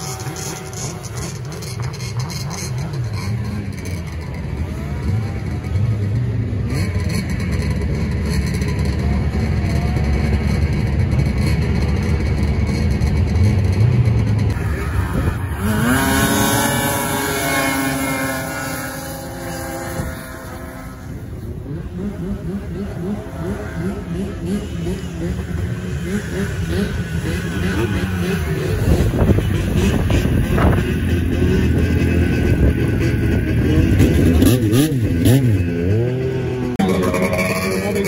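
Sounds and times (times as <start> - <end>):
snowmobile engines droning: 0.0 - 38.0
snowmobile revving hard: 0.0 - 38.0.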